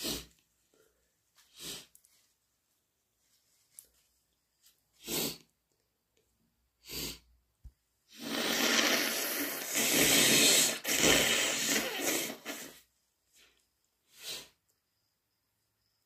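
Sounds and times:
person blowing nose: 0:00.0 - 0:00.4, 0:01.5 - 0:01.9, 0:05.0 - 0:05.4, 0:08.1 - 0:12.9, 0:14.1 - 0:14.6
person sniffling: 0:00.0 - 0:02.0, 0:05.0 - 0:05.5, 0:06.8 - 0:07.3, 0:08.1 - 0:12.8, 0:14.1 - 0:14.6.

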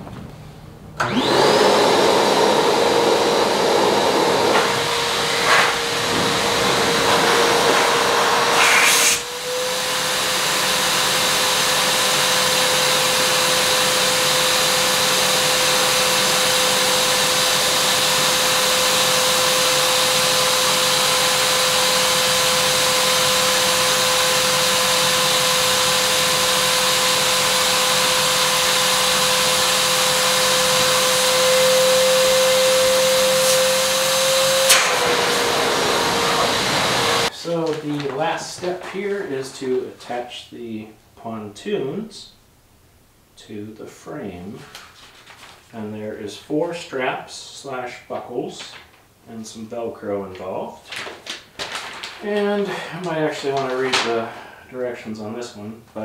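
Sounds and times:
shop vacuum motor running: 0:01.0 - 0:37.3
air blowing through hose: 0:02.4 - 0:10.6, 0:23.4 - 0:37.3.

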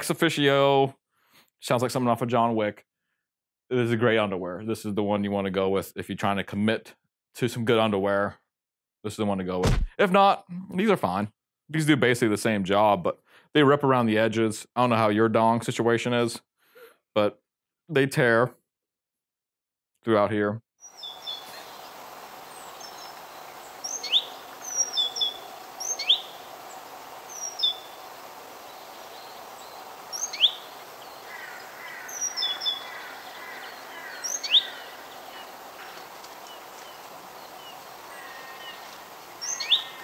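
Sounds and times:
wild birds chirping: 0:20.8 - 0:40.0
steady outdoor hiss: 0:20.9 - 0:40.0.

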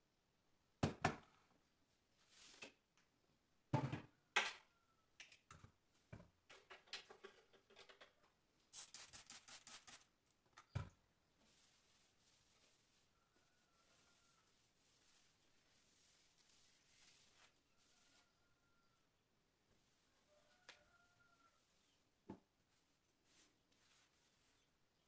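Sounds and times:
objects knocking on shelves: 0:00.8 - 0:01.3, 0:03.7 - 0:04.6.

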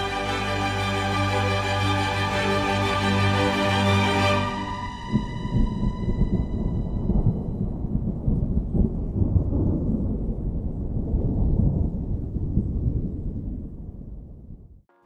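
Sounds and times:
held musical note: 0:00.0 - 0:07.9
rolling thunder rumble: 0:04.5 - 0:14.8.

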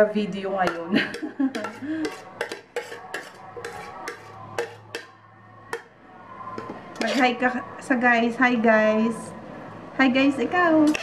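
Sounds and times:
metal spoon scraping a steel bowl: 0:00.6 - 0:05.9, 0:06.5 - 0:07.6.

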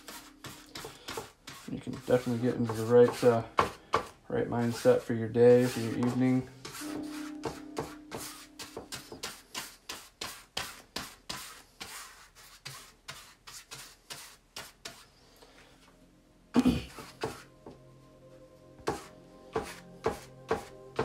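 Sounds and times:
paintbrush scrubbing on canvas: 0:00.0 - 0:03.5, 0:04.6 - 0:15.1.

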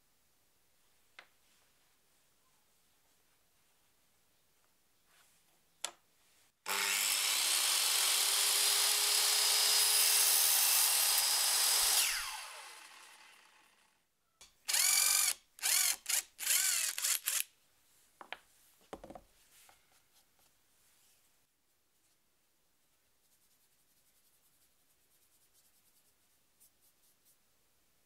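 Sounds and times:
power drill bursts: 0:06.7 - 0:13.8, 0:14.7 - 0:17.4
circular saw cutting wood: 0:06.7 - 0:13.9, 0:14.7 - 0:17.4.

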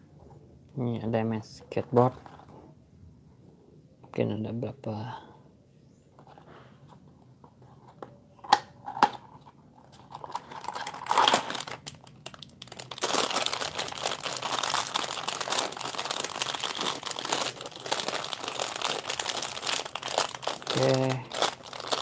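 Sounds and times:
plastic bag crinkling: 0:10.0 - 0:22.0.

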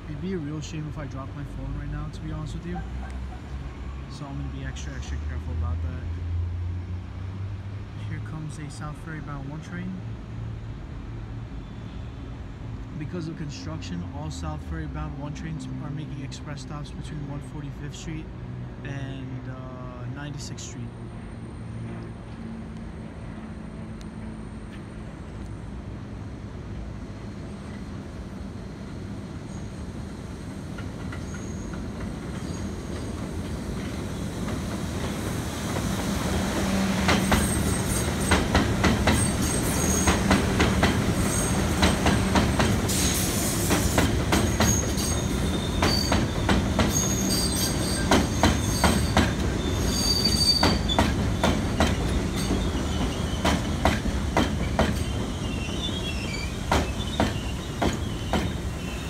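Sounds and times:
train rumble: 0:19.7 - 0:59.0
train wheels squealing: 0:31.1 - 0:33.2, 0:37.1 - 0:38.4, 0:39.1 - 0:40.3, 0:41.2 - 0:54.0, 0:54.6 - 0:59.0
train wheels clacking over rail joints: 0:36.7 - 0:55.4, 0:56.6 - 0:58.7.

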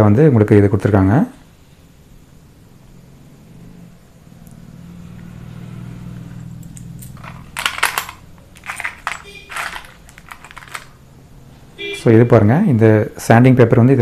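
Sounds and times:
metal bits clicking on plastic case: 0:06.6 - 0:11.0.

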